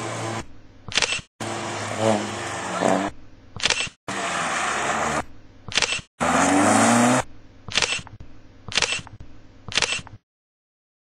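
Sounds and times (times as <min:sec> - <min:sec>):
race car engine revving: 0:01.4 - 0:03.2, 0:06.2 - 0:07.3
short sharp clicks: 0:08.7 - 0:10.2.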